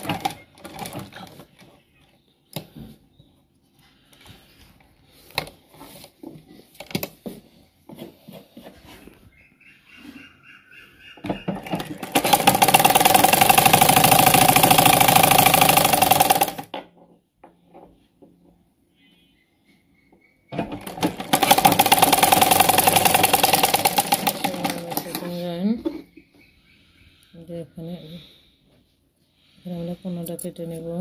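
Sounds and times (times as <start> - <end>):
sewing machine running: 11.6 - 16.7, 20.6 - 25.4.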